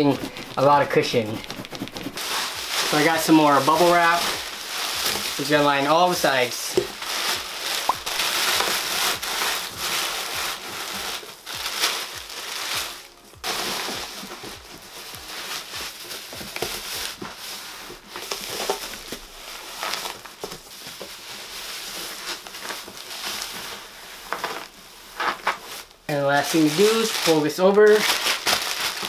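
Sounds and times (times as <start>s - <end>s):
bubble wrap crinkling: 0.0s - 29.0s.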